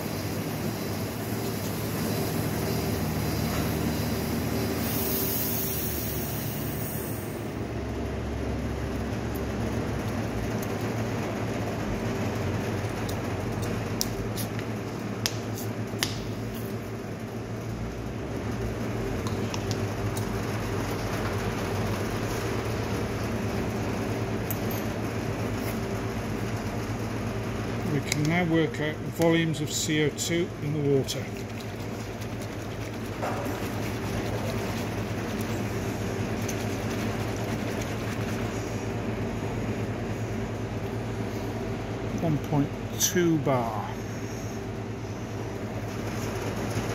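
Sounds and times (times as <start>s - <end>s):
carbonator machine humming: 0.0s - 46.9s
water sloshing in plastic bottle: 31.1s - 38.5s.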